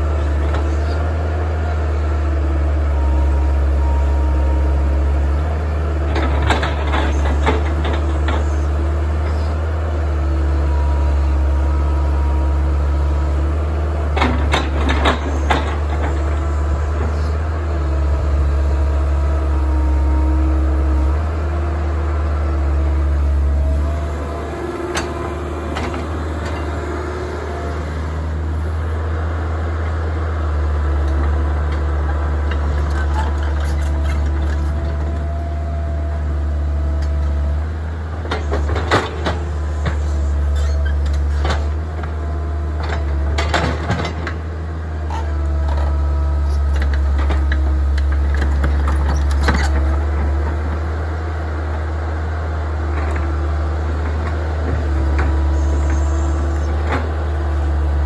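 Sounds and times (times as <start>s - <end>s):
excavator diesel engine: 0.0s - 58.0s
hydraulic whine: 10.2s - 29.0s, 54.6s - 58.0s.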